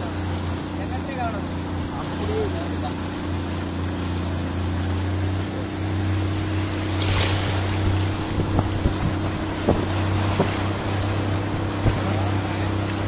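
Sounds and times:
motorboat engine running: 0.0s - 13.0s
water rushing along hull: 0.0s - 13.0s
wind on microphone: 6.4s - 13.0s
short knocks: 7.8s - 10.8s, 11.5s - 12.3s.

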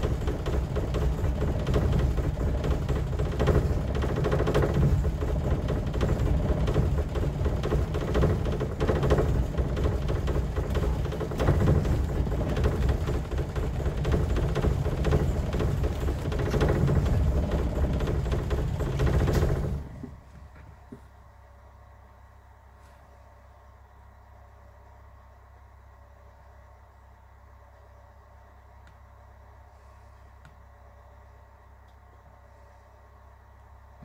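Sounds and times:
car engine running roughly: 0.0s - 20.1s.

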